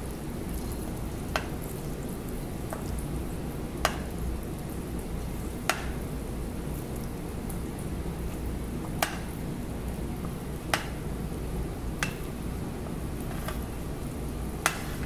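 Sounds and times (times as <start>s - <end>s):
pot bubbling at the boil: 0.0s - 15.0s.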